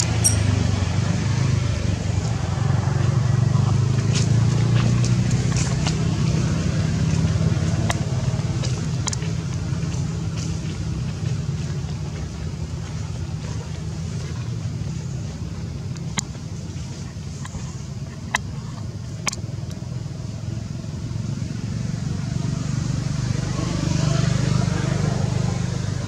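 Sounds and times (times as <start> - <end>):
faint sharp clicks: 17.4 - 19.8.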